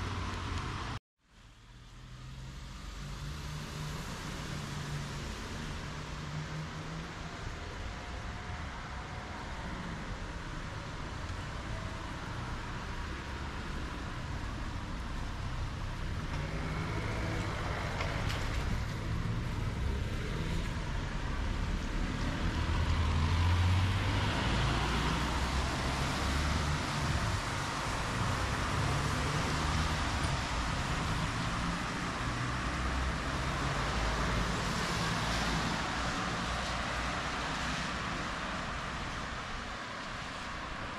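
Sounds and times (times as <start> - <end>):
vehicles passing: 0.0 - 40.9.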